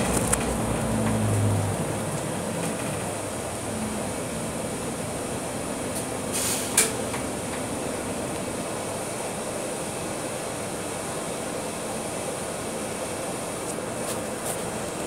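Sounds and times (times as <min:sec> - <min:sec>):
bus cabin running noise: 0:00.0 - 0:15.0
short air hiss: 0:06.3 - 0:07.0.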